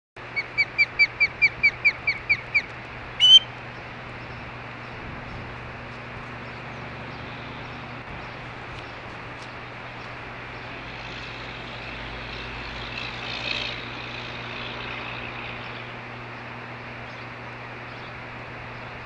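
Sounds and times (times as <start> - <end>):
steady low hum: 0.2 - 19.0
harsh osprey call: 0.3 - 3.6
osprey whistled chirps: 0.4 - 3.5.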